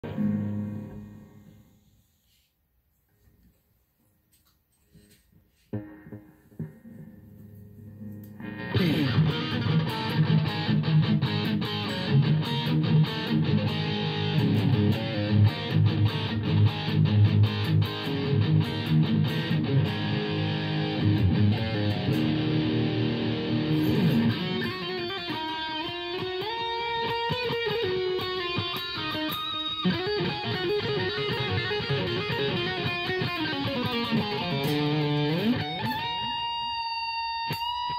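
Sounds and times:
electric guitar with reverb: 0.0s - 2.0s, 5.7s - 37.9s.

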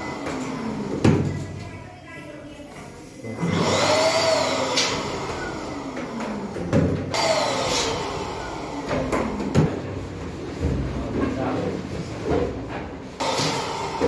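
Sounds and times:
electric balloon pump whirring: 0.0s - 1.4s, 3.4s - 10.2s, 13.2s - 14.0s.

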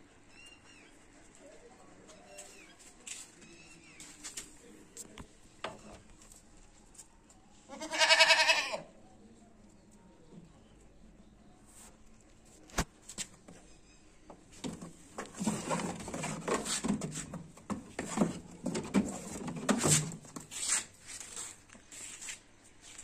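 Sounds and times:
rustling and scraping on microphone: 14.5s - 23.0s.

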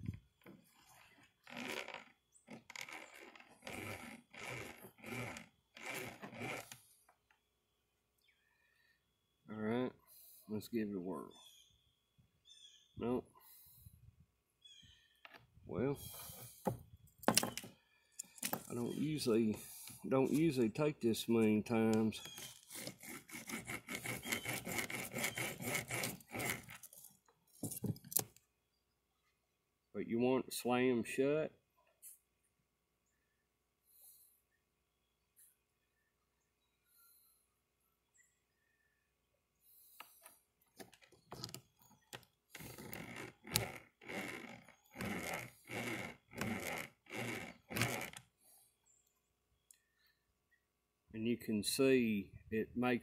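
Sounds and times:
wire cable scraping against nail: 0.4s - 6.9s, 16.0s - 20.6s, 21.4s - 28.4s, 39.9s - 48.3s.

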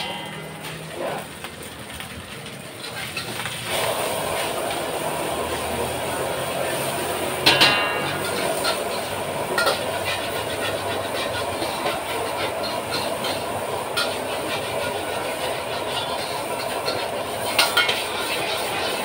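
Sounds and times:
metal spatula clanking on wok: 0.0s - 1.3s, 7.3s - 19.0s
wok hissing over gas burner: 0.0s - 19.0s.

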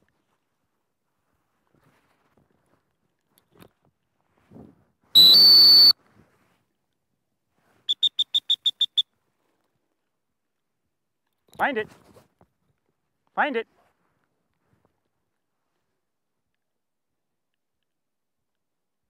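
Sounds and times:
dog-training whistle blasts: 5.2s - 6.0s, 7.9s - 9.0s.

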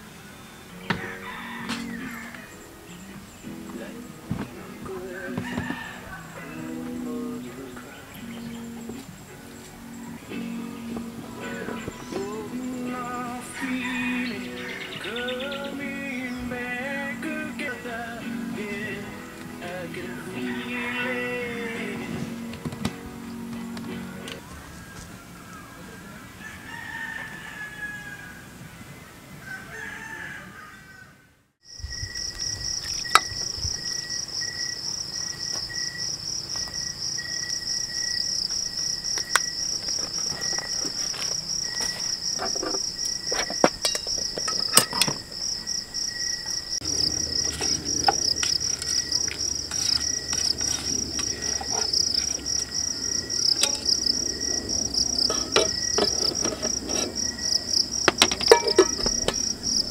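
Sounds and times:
faint insect tone: 0.0s - 24.3s, 31.6s - 59.9s
crickets trilling: 0.0s - 25.7s, 31.6s - 59.9s
birds calling faintly: 0.0s - 27.8s, 31.7s - 59.9s
utensils clicking on pot: 43.4s - 45.2s, 53.6s - 54.0s, 55.2s - 57.3s, 58.0s - 59.5s.

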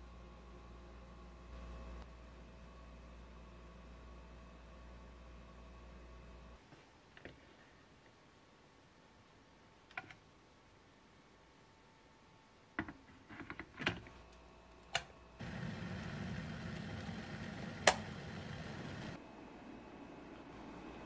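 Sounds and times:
water heating in kettle: 14.9s - 19.2s
loud sharp click: 17.8s - 18.0s
kettle switch click: 17.8s - 18.1s.

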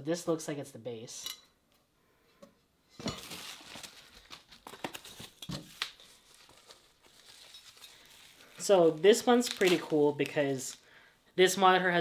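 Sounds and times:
plastic bag crinkling: 3.1s - 10.8s.

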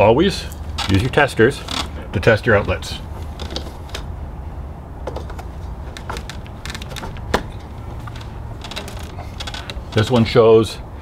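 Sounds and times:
outlet tester clicks and knocks: 5.0s - 10.2s.

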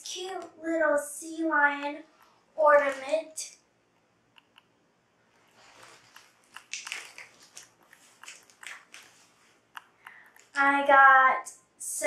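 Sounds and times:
packaging crinkling and rustling: 5.4s - 9.6s.

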